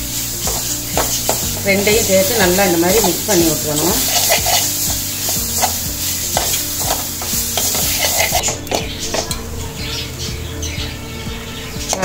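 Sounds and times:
metal spoon scraping a steel pan: 0.4 - 9.5.

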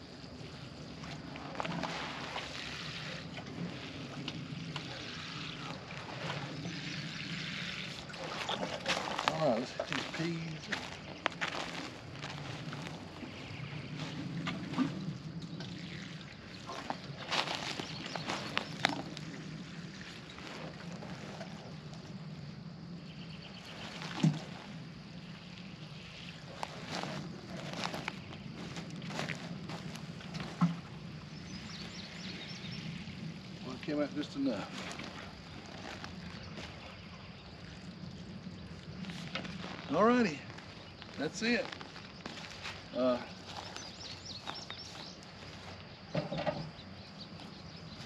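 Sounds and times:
liquid trickling and splashing: 0.3 - 22.2, 23.5 - 45.8.

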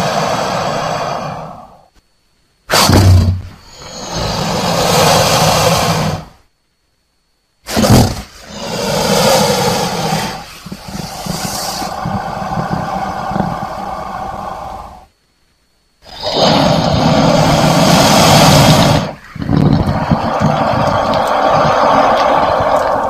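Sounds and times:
crocodile vocalizing: 2.7 - 6.4, 7.7 - 15.1, 16.0 - 23.0.

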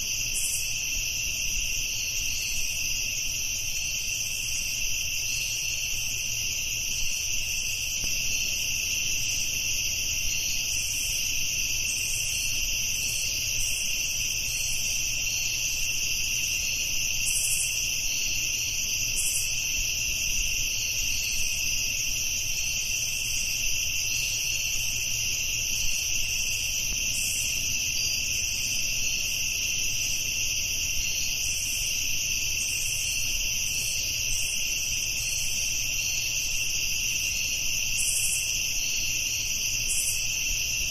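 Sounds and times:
insects chirping chorus: 0.0 - 40.9.

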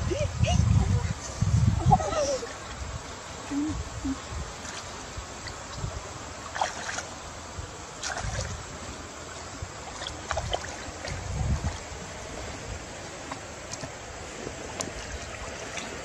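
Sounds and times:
water sloshing and splashing: 4.6 - 7.2, 8.0 - 16.0.

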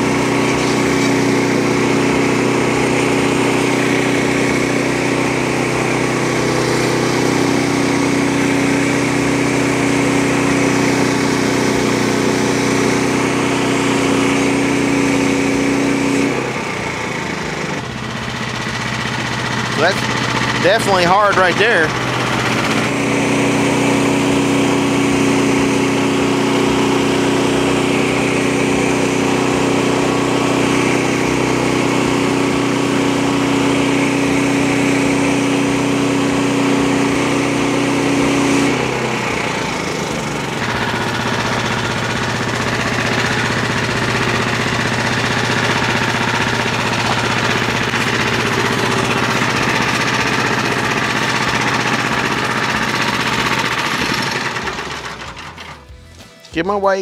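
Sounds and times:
band blade sawing log: 0.0 - 9.1, 18.7 - 35.8
sawmill engine running: 0.0 - 57.0.

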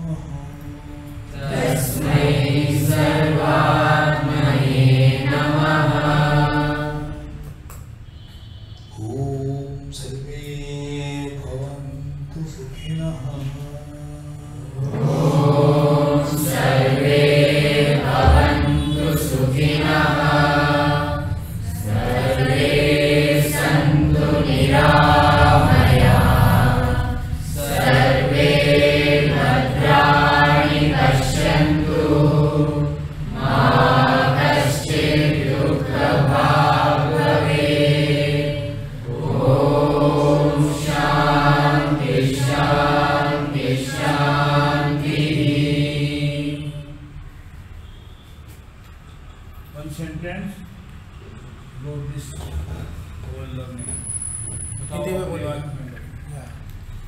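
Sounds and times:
voices chanting together: 0.0 - 12.1, 14.0 - 48.0
steady low hum: 0.0 - 48.2.

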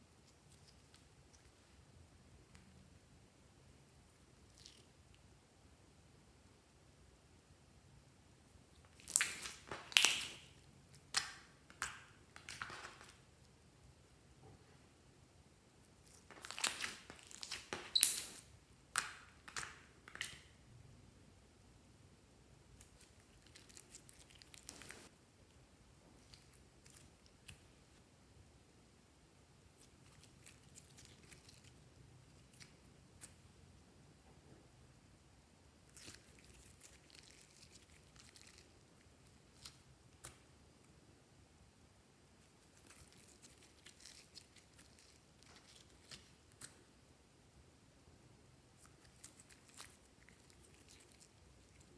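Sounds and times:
slime crackling squishes: 8.8 - 13.3, 16.0 - 20.5, 22.7 - 25.1, 29.7 - 33.4, 35.8 - 40.5, 42.6 - 46.8, 48.8 - 51.9.

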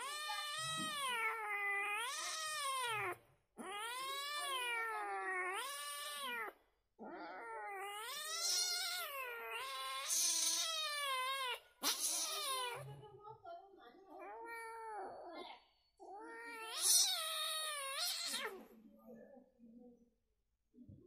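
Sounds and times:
cat yowling: 0.0 - 12.9, 16.0 - 18.6.

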